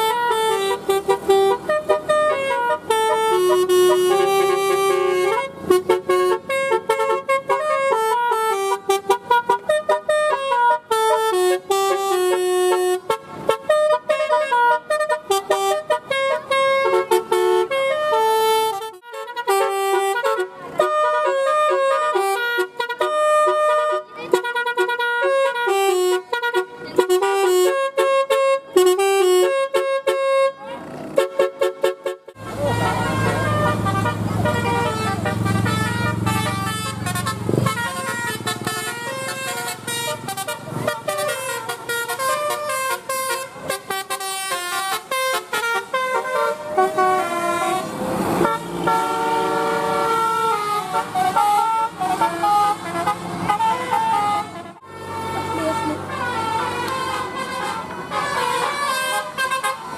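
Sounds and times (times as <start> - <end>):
multi-tone air horn melody: 0.0 - 59.9.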